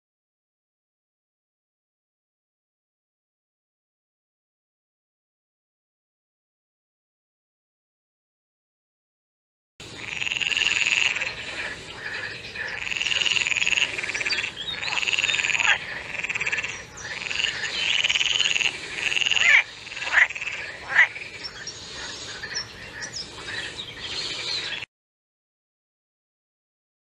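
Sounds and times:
frogs croaking: 9.8s - 24.9s
sharp falling frog calls: 9.9s - 23.7s.

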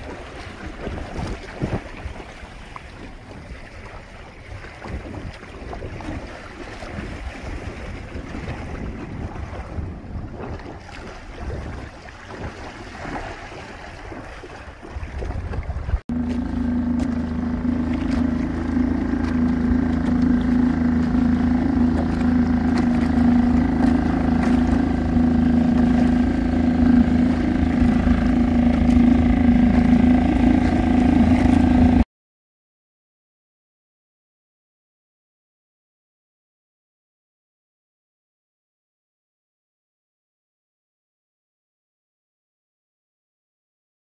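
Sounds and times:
outboard motor running: 0.0s - 32.0s
water noise: 0.0s - 32.1s
wind: 0.0s - 32.1s.

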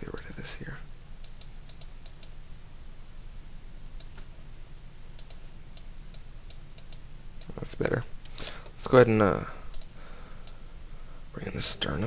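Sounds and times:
steady low hum: 0.0s - 12.0s
computer mouse and keyboard clicks: 1.2s - 2.3s.

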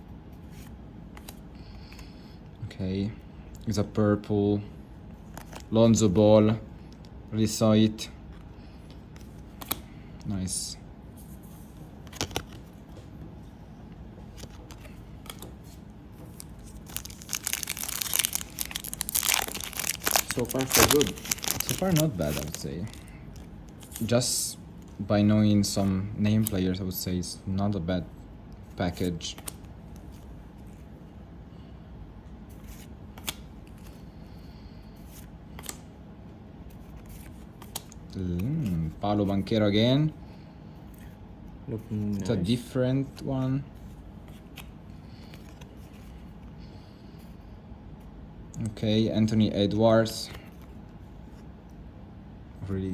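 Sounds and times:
steady low hum: 0.0s - 52.9s
cards rustling and clicking: 0.4s - 2.2s, 5.2s - 6.0s, 8.3s - 10.0s, 11.9s - 13.2s, 14.2s - 25.0s, 28.8s - 30.9s, 32.5s - 34.0s, 35.0s - 35.9s, 36.7s - 39.0s, 41.8s - 46.4s
plastic wrapper crinkling and tearing: 16.4s - 24.1s.

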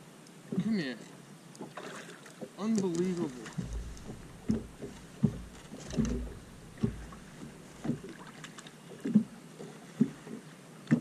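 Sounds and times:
water slapping boat hull: 1.6s - 11.0s
low rumble: 3.2s - 8.2s.

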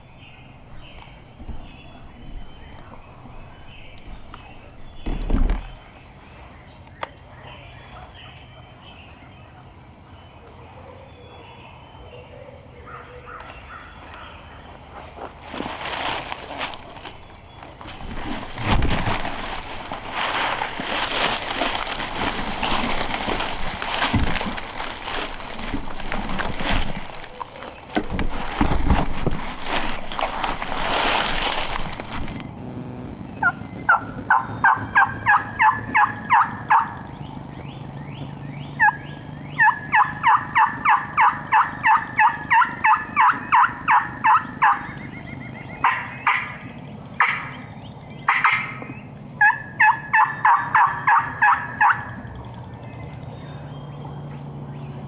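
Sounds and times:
wild turkey yelping: 33.4s - 46.6s, 47.2s - 47.6s, 48.2s - 52.3s.

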